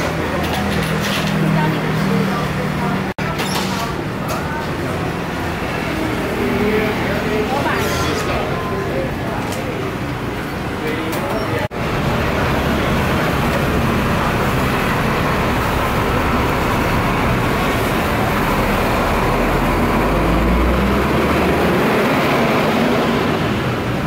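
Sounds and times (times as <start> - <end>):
street traffic noise: 0.0 - 24.0
passing vehicle rumble: 11.7 - 24.0.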